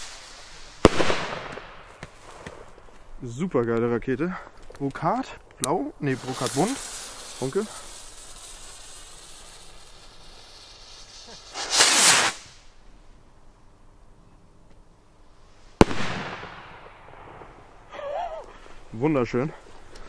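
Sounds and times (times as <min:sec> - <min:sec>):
firework bang: 0:00.8 - 0:02.6, 0:11.2 - 0:12.6, 0:15.8 - 0:17.6
rocket whoosh: 0:06.0 - 0:12.7.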